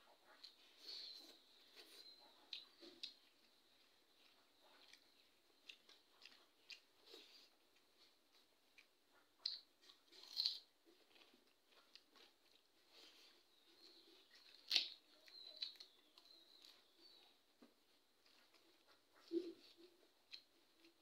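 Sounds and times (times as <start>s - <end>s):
person chewing: 0.1s - 21.0s
small clicks and smacks: 14.2s - 19.4s.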